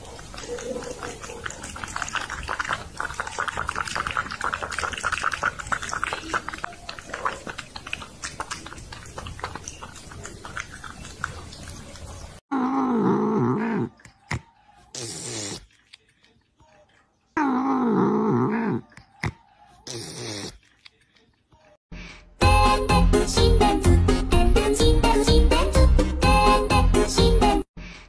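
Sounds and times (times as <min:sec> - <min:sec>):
cat lapping water: 0:00.0 - 0:12.4.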